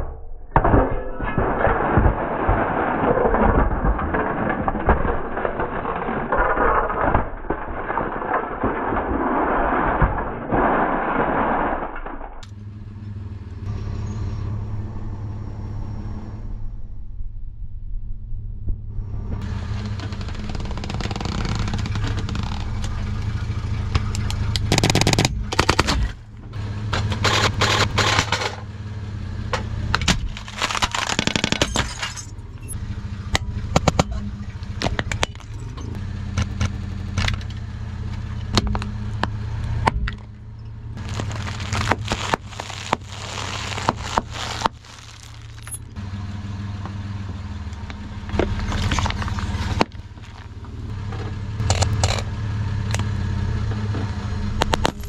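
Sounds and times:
plastic and glass crunching: 1.3 - 12.5, 20.0 - 22.9, 30.0 - 32.8, 33.8 - 36.0, 41.0 - 46.0, 48.3 - 50.6, 54.6 - 55.0
car engine running: 12.4 - 55.0.

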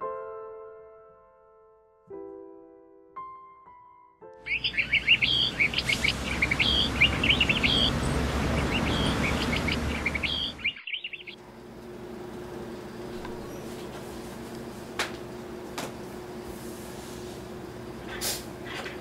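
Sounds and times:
small birds chirping: 4.5 - 11.7, 12.5 - 13.8
low outdoor rumble: 4.6 - 16.5.

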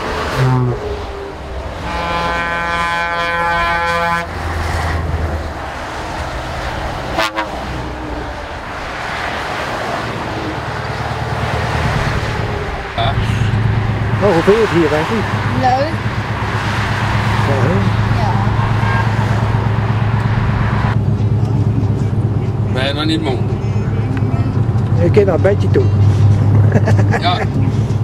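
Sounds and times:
heavy trucks driving past: 0.0 - 28.0
truck air horn: 0.2 - 1.0, 1.8 - 4.5, 7.1 - 8.0, 18.4 - 19.6.

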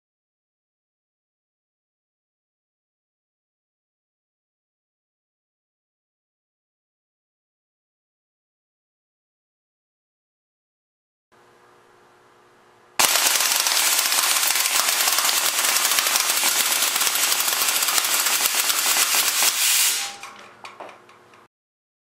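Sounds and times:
air cannon firing rapidly: 13.0 - 20.2.

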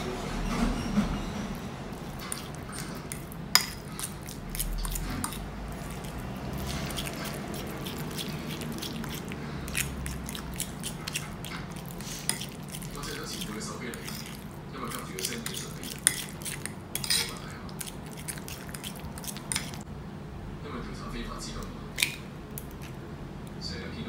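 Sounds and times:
fork mashing soft pumpkin: 1.5 - 19.9, 21.9 - 23.0
fork clinking against bowl: 1.9 - 19.8.

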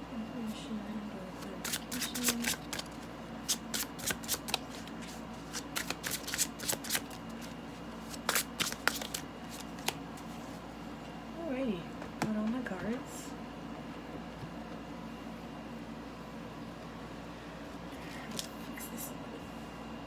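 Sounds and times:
cards being shuffled: 1.4 - 10.3, 18.2 - 18.7.

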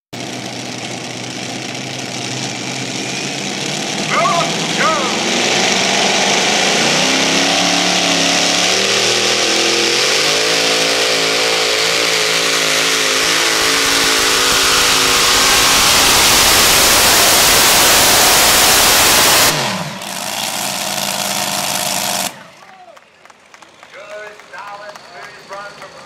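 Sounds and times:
pulling tractor engines roaring: 0.1 - 26.0
engines spinning down: 0.2 - 22.8.

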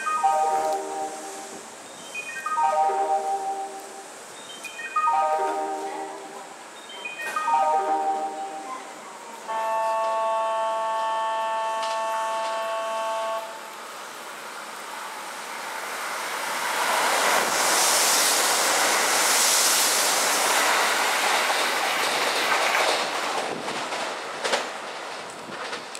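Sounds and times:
train passing with rushing hiss: 0.0 - 25.9
train horn: 9.4 - 13.8.

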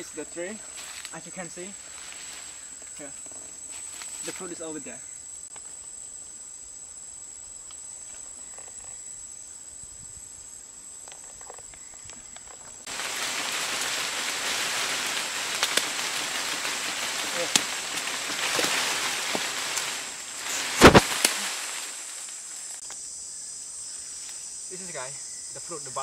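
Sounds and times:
rustle of shaken tree branches: 0.0 - 4.7, 11.0 - 22.9
sharp snaps of branches: 12.9 - 23.0.

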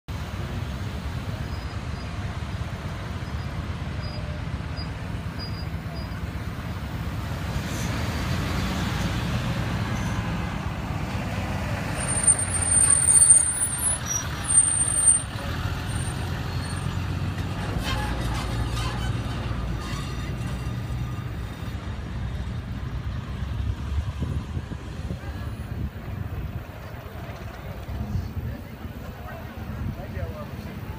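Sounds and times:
vehicles driving past: 0.1 - 30.9
high-pitched squeal: 11.8 - 21.7.

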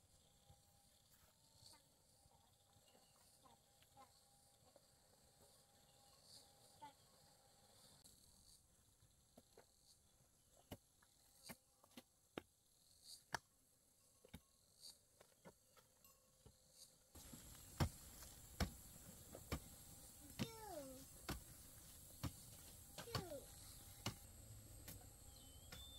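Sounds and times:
insects chirring: 16.5 - 25.9
background hiss: 16.7 - 25.9.

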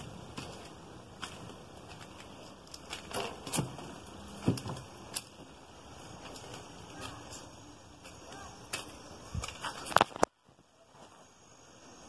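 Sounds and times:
footsteps crunching dry leaves: 0.0 - 10.0
background hiss: 0.0 - 12.0.

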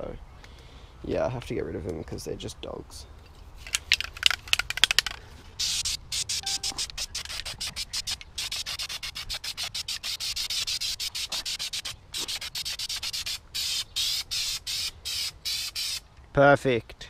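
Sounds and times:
aerosol can spraying in bursts: 7.4 - 16.0.

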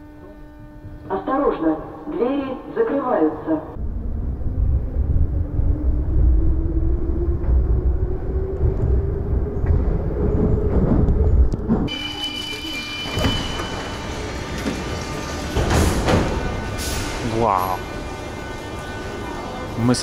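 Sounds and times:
train motor whine: 3.8 - 19.8
train wheels rumbling on rails: 3.8 - 20.0.

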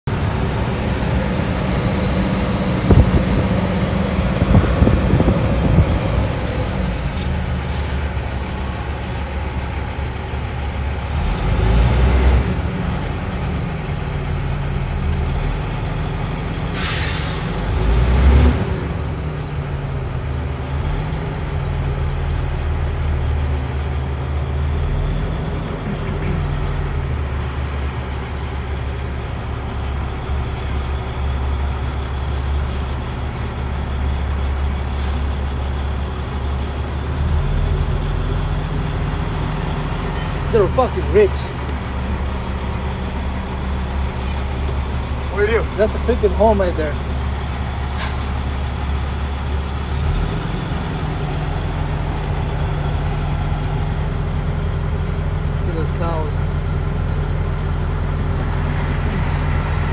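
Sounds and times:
truck diesel engine running: 0.1 - 59.9
air brake hiss: 16.8 - 17.6, 48.0 - 48.5.

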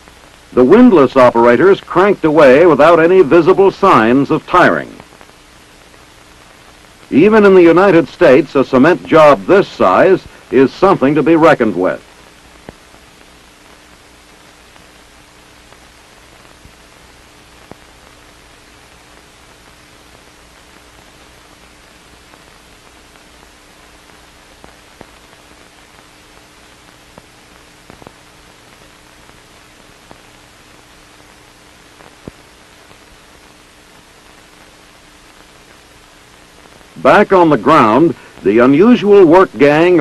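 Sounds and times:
faint low hum: 0.0 - 40.0
steady film hiss: 0.0 - 40.0
faint clicks: 27.1 - 28.2.

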